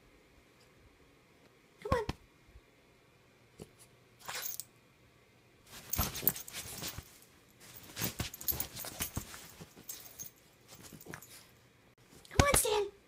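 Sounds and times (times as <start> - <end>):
puppy rustling bedsheets: 5.7 - 12.2.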